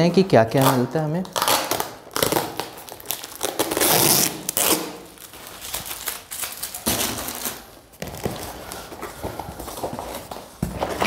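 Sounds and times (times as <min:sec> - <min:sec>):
packing tape ripping off box: 0:00.6 - 0:08.7
cardboard rustling: 0:05.2 - 0:11.0.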